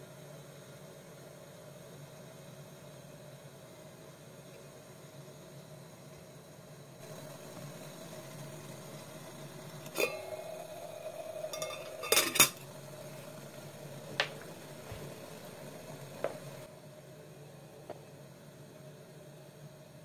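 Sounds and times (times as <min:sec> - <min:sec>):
gas burner and water rushing: 0:07.0 - 0:16.7
metallic kettle clinks: 0:09.8 - 0:12.6.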